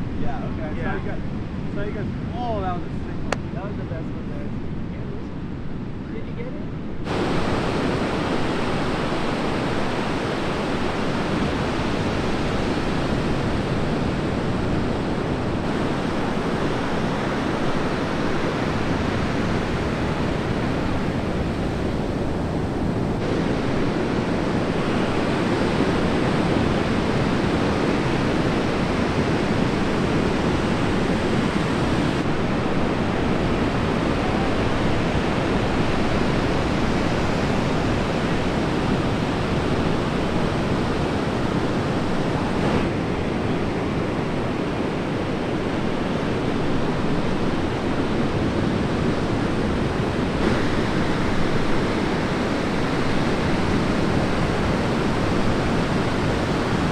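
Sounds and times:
heavy ocean surf breaking: 0:00.0 - 0:56.9.

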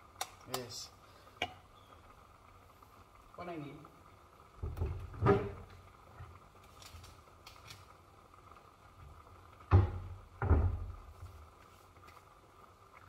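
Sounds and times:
cabinet door thumping: 0:09.7 - 0:10.9.

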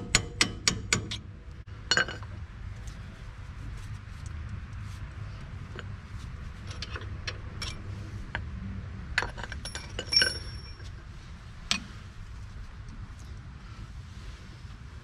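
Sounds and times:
metal tools clinking: 0:09.2 - 0:11.0.

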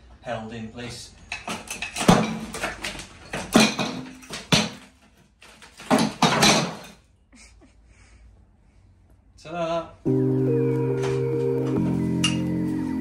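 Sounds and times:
tiles knocking and cracking: 0:01.3 - 0:07.0.

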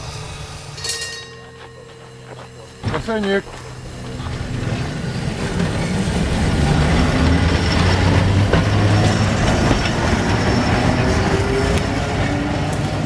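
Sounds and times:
tram rumbling past on rails: 0:00.0 - 0:13.0.

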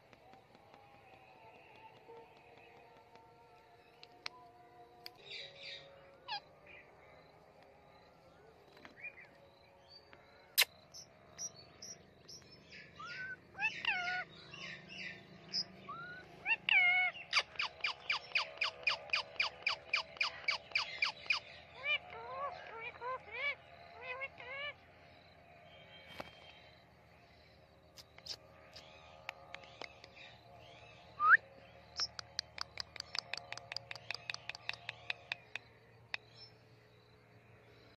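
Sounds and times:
birds chirping and calling: 0:05.2 - 0:06.9, 0:10.6 - 0:36.6
parakeet clicking chirps: 0:17.6 - 0:21.4, 0:28.0 - 0:30.3, 0:32.0 - 0:36.5.

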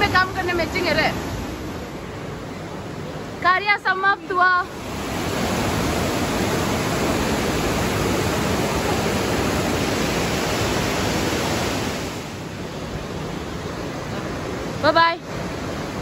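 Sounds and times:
river rapids rushing: 0:04.2 - 0:16.0.

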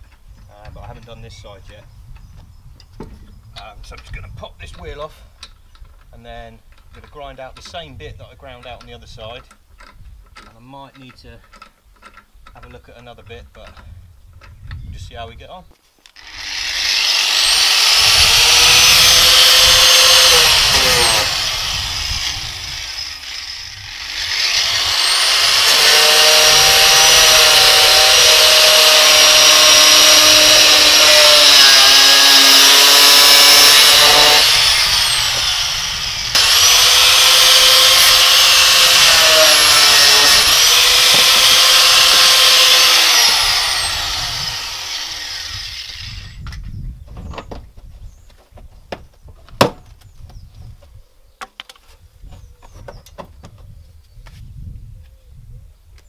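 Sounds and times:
angle grinder grinding plastic: 0:16.1 - 0:46.4.

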